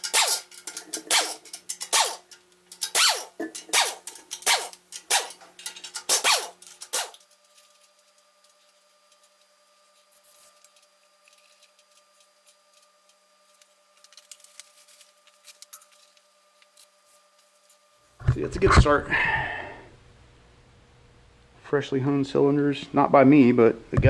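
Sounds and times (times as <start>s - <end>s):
air impact wrench bursts: 0.0s - 7.2s
rag rubbing metal: 0.0s - 7.2s.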